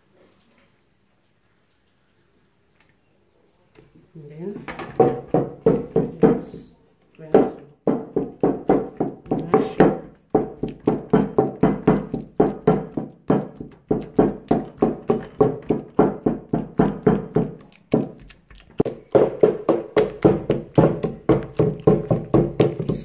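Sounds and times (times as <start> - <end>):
pestle pounding in metal bowl: 5.0 - 6.6, 7.3 - 23.0.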